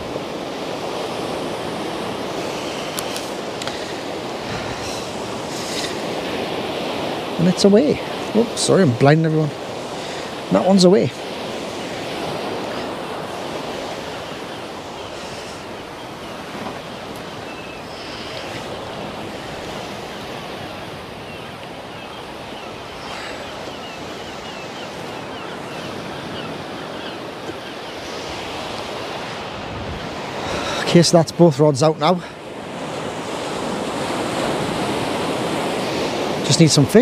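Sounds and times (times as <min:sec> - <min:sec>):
sea waves breaking on shore: 0:00.0 - 0:37.0
wind: 0:00.0 - 0:37.0.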